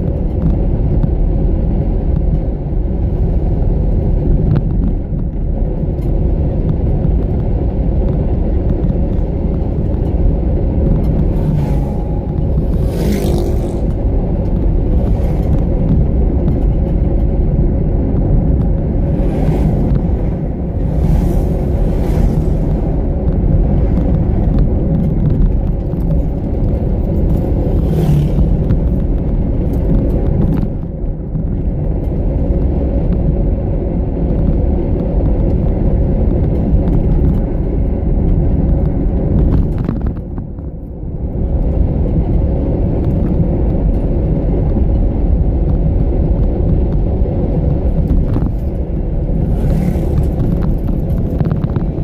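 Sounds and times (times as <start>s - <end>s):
car engine and tyres rumbling: 0.0s - 52.0s
motorcycle passing: 10.9s - 15.9s, 18.9s - 24.8s, 26.3s - 29.1s, 48.0s - 51.2s.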